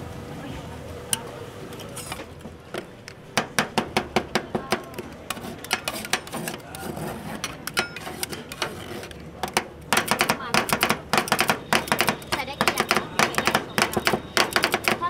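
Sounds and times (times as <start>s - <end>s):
knife chopping on a board: 9.5s - 15.0s.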